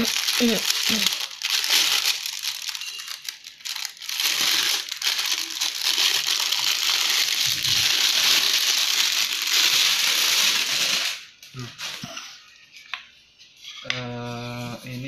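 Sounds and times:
plastic wrapping crinkling: 0.0s - 13.2s.

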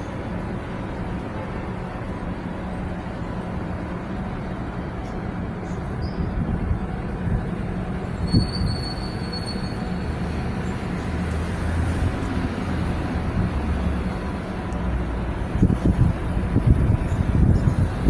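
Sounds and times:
low rumble with hiss: 0.0s - 18.0s
thin high whistle: 8.2s - 10.1s.

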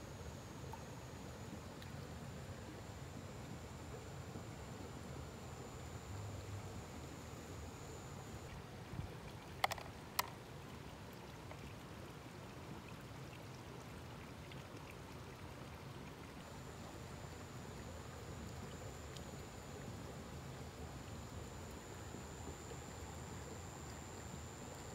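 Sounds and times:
faint low outdoor rumble: 0.0s - 24.9s.

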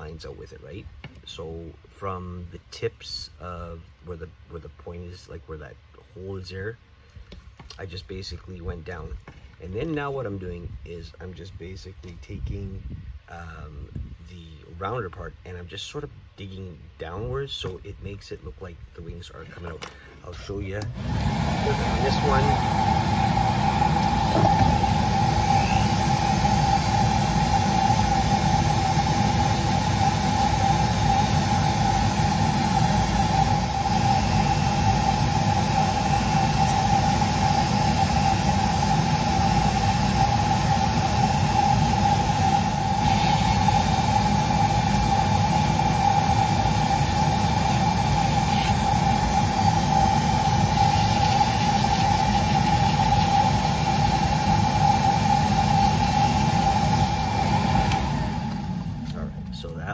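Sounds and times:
rotary carving tool whining: 20.8s - 59.2s.

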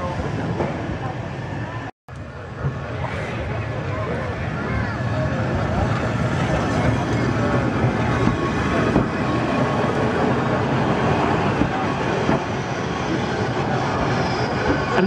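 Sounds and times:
tram wheels rumbling on track: 0.0s - 15.0s.

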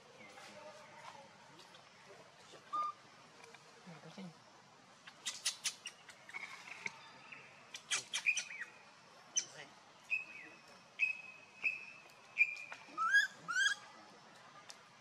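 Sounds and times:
monkey calling: 2.6s - 3.0s, 5.1s - 6.8s, 7.7s - 8.7s, 12.4s - 13.9s.

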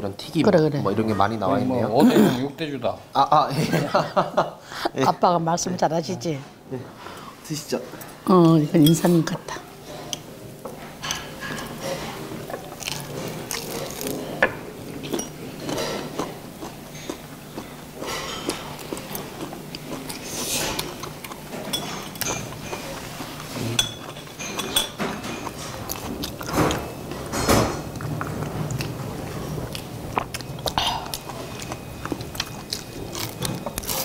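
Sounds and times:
metal chopsticks clinking on plates: 8.8s - 9.1s, 21.6s - 22.6s, 23.8s - 25.6s
chewing fried food: 12.4s - 14.3s, 15.0s - 21.5s, 27.9s - 34.0s.

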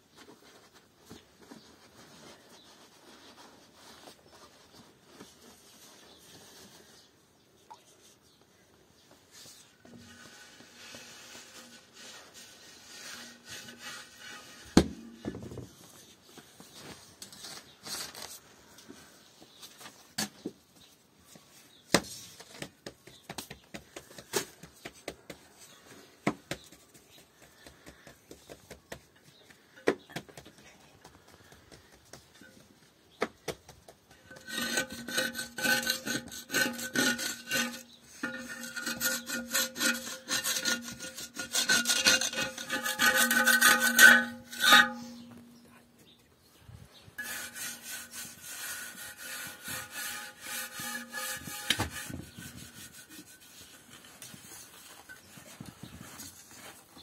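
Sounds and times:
rapid ringing scraping strokes: 34.3s - 45.6s, 47.2s - 53.7s.

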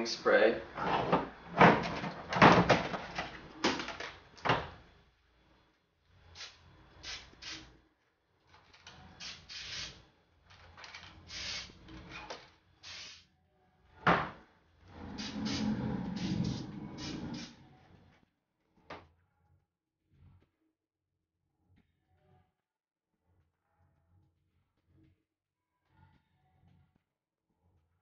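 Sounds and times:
aerosol can spraying: 6.4s - 7.7s, 9.2s - 10.0s, 11.3s - 11.8s, 12.8s - 13.2s, 15.1s - 17.5s.

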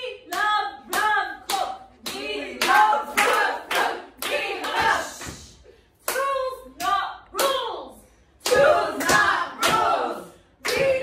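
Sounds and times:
women singing together: 0.0s - 11.0s.

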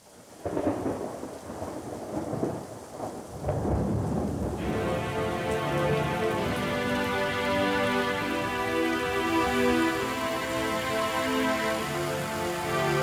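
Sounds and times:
heavy rain: 0.0s - 13.0s
rolling thunder: 0.4s - 6.6s
sustained musical chords: 4.6s - 13.0s.

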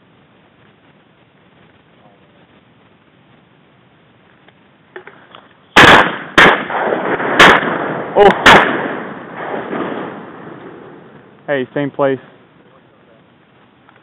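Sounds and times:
shotgun shots with echo: 5.8s - 11.0s.

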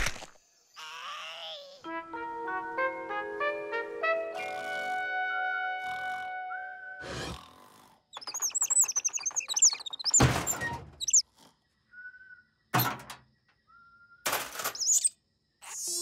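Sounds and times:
high squeaky cartoon chirps: 8.1s - 11.2s, 14.7s - 16.0s.

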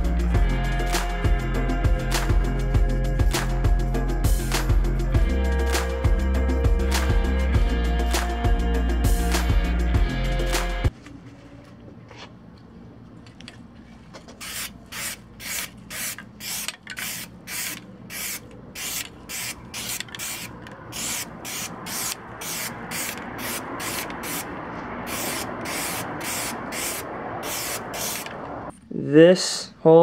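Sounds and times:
aerosol can spraying bursts: 14.4s - 28.4s.

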